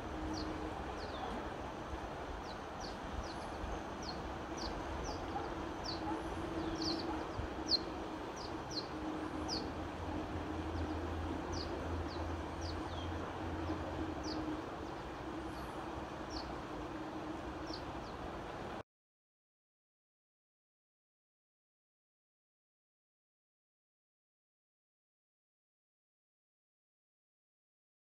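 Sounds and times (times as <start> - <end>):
river rushing over rocks: 0.0 - 18.8.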